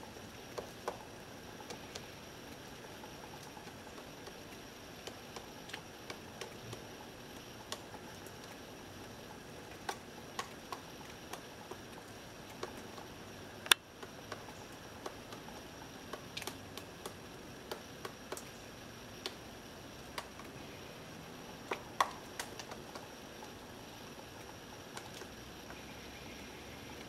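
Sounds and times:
woodpecker knocking on wood: 0.5s - 2.1s.

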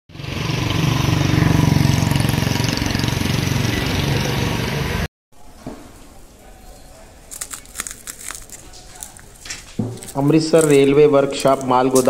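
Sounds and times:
engine running with pulsing beat: 0.1s - 5.0s.

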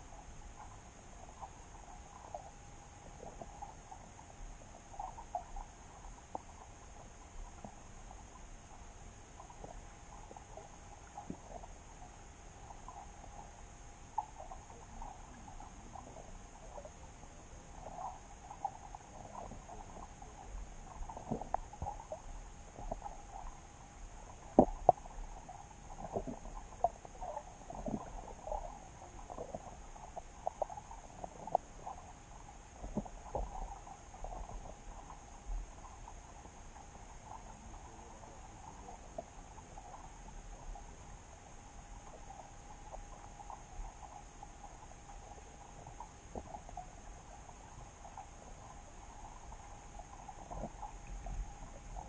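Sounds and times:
faint steady hiss: 0.0s - 52.0s
underwater clicks and knocks: 21.0s - 22.2s, 24.4s - 25.1s.

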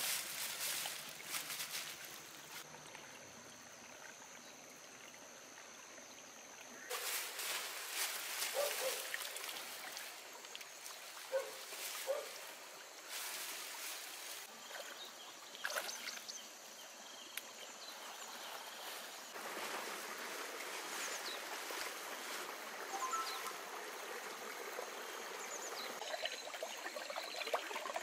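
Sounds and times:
plastic sheeting rustling: 0.0s - 2.1s, 6.9s - 9.3s
water trickling: 0.0s - 16.4s, 19.3s - 28.0s
short high bird chirps: 22.9s - 23.6s.

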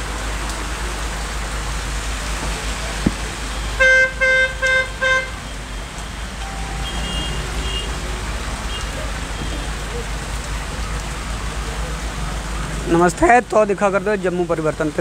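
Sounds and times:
rain on a wet street: 0.0s - 15.0s
vehicle horn honks: 3.8s - 5.5s, 6.4s - 8.1s.

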